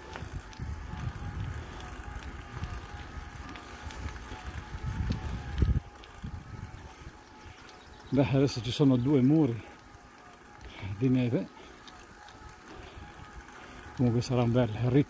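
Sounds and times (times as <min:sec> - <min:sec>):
wind buffeting microphone: 0:00.0 - 0:09.6
bicycle riding on asphalt: 0:00.0 - 0:15.0.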